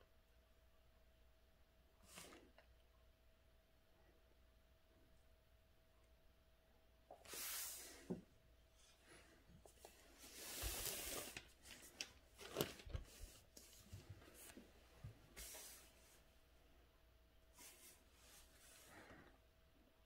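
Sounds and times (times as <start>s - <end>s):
ink brush swishing on paper: 7.2s - 8.2s, 15.3s - 16.3s.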